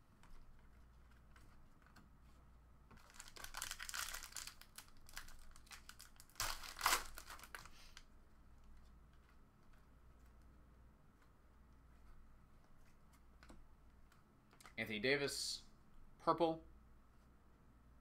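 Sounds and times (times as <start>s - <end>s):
foil wrapper crinkling and tearing: 3.0s - 8.0s.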